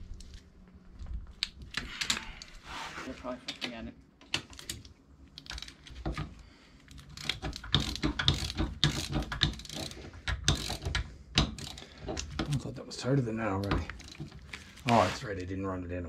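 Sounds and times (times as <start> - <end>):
ratchet wrench clicking: 6.9 - 12.3.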